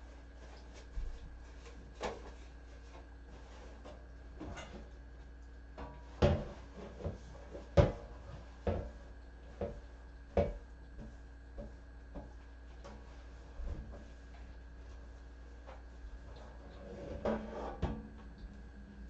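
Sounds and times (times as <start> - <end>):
faint steady hum: 0.0 - 19.0
objects knocking and clunking: 5.8 - 13.0.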